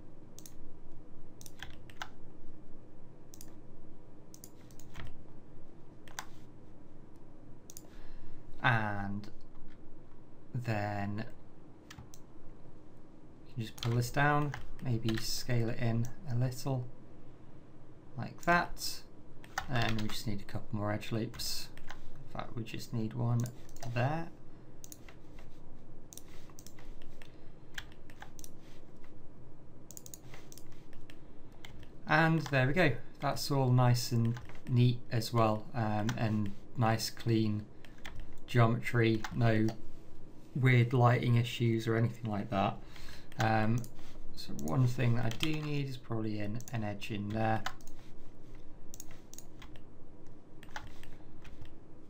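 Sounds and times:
faint room hum: 0.0s - 52.0s
mouse clicks: 3.3s - 3.6s, 7.7s - 7.9s, 26.1s - 28.6s, 29.9s - 31.9s, 48.9s - 49.9s
mouse and keyboard clicks: 6.1s - 6.4s, 29.9s - 31.9s, 48.9s - 49.8s.

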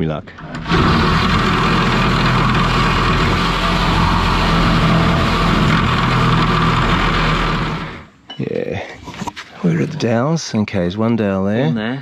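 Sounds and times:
angle grinder whining: 0.4s - 8.2s.

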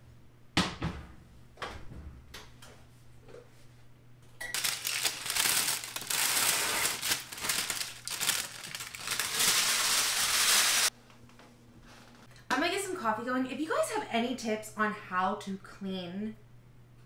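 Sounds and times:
parchment paper crinkling: 4.5s - 10.9s.

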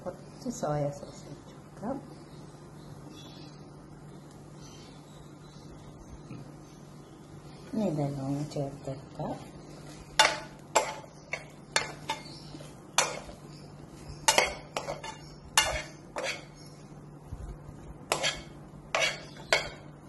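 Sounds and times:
steady low hum: 0.0s - 20.0s
metal spoon scraping frying pan: 10.2s - 13.4s, 14.2s - 16.6s, 18.1s - 19.9s.

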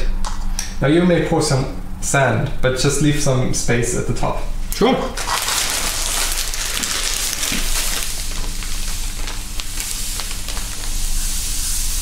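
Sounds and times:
sand pouring into plastic cup: 5.4s - 12.0s.

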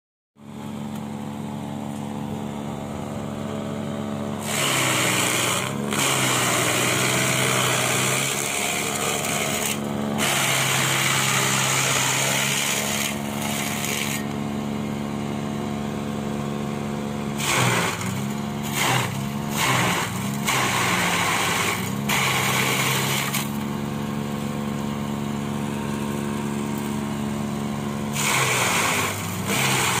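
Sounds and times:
electric chopper motor humming: 2.2s - 30.0s
stalks being shredded: 4.4s - 14.4s, 17.3s - 23.8s, 28.1s - 30.0s.

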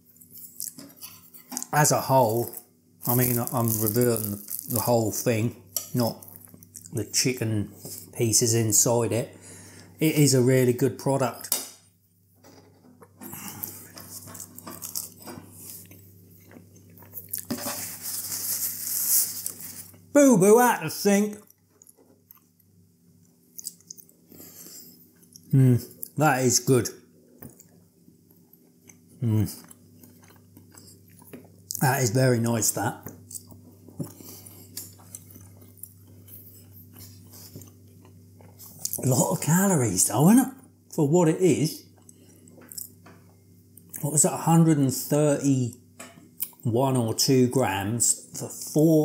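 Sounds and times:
person chewing and crunching: 0.0s - 5.2s, 5.9s - 7.0s, 13.0s - 20.1s, 21.3s - 26.2s, 27.4s - 31.8s, 33.0s - 39.2s, 41.9s - 43.0s
paper napkin rustling: 17.5s - 19.9s.

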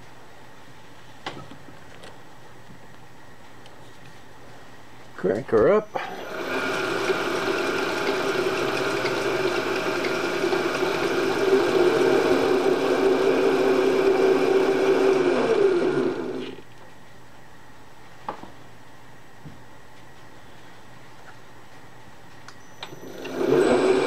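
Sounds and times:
milling machine spindle running: 6.0s - 16.6s, 22.8s - 24.0s
motor winding down: 6.1s - 16.6s, 22.8s - 24.0s.

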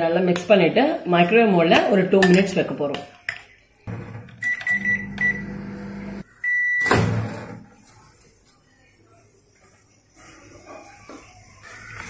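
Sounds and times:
microwave oven humming: 3.9s - 6.2s
microwave beeps: 4.0s - 7.3s.

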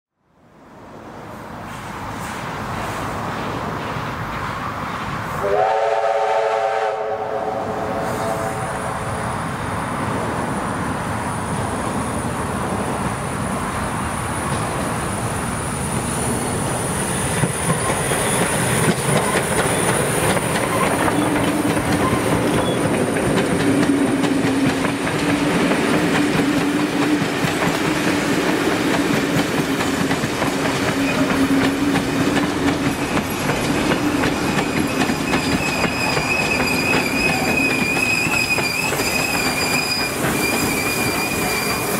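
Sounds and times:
approaching train noise: 0.3s - 41.9s
steam locomotive whistle: 5.4s - 8.9s, 34.8s - 41.9s
carriage wheels clickety-clack: 17.4s - 41.9s.

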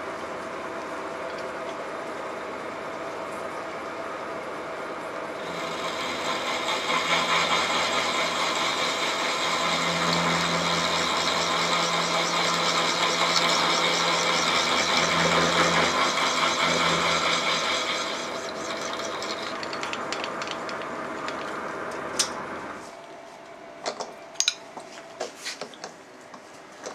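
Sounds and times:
spindle motor hum: 5.1s - 23.6s
milling machine cutting steel: 5.4s - 19.8s.

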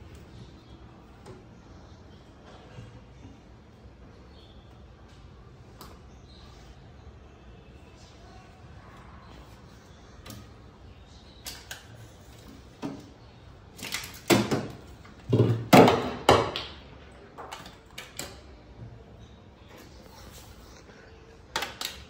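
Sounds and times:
knocks and rattles in refrigerator: 14.2s - 16.6s.

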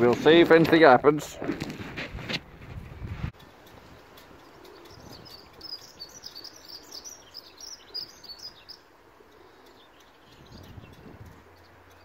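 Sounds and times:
songbird twittering: 3.4s - 12.0s.

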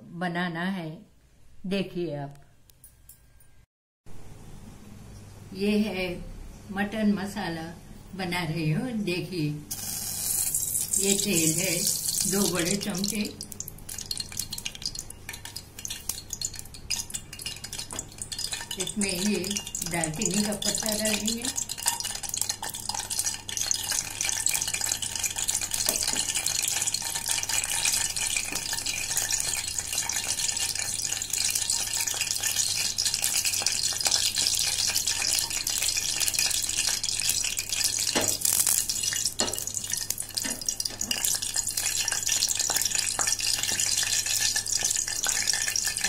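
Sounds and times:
hot oil sizzling in a pot: 9.7s - 46.0s.

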